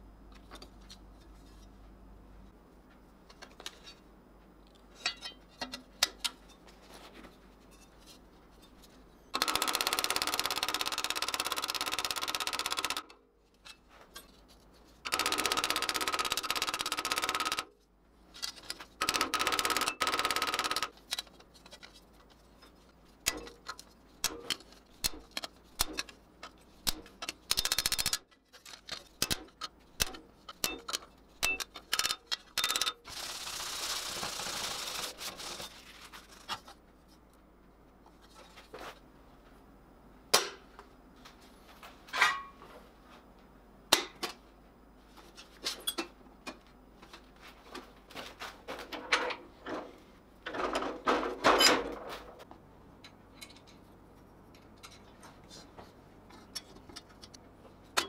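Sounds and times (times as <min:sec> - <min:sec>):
hammer tapping steel rivets: 0:05.0 - 0:06.6, 0:29.2 - 0:33.0.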